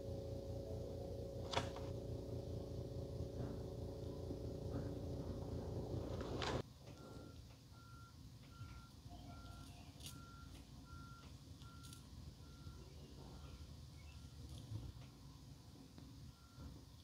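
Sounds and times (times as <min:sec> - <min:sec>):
loud noise with low hum: 0:00.0 - 0:17.0
faint electronic beeps: 0:07.0 - 0:14.6.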